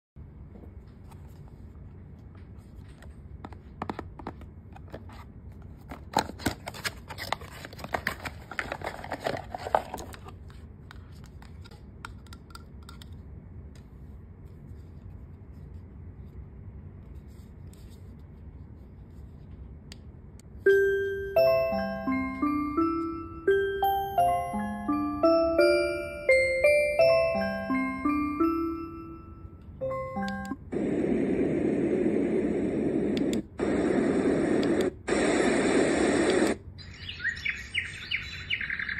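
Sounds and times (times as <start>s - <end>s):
packaging crinkling and rustling: 4.8s - 10.5s
chime-like music box melody: 20.7s - 30.6s.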